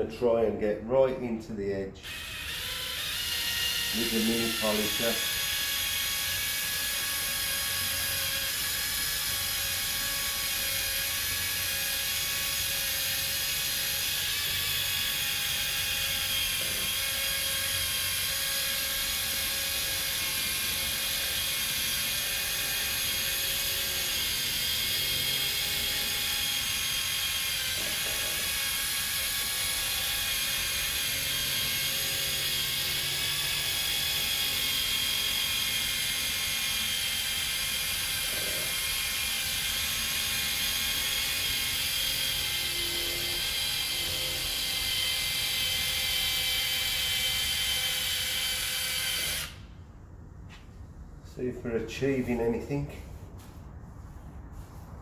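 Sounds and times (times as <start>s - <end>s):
rotary polisher whining: 2.0s - 49.6s.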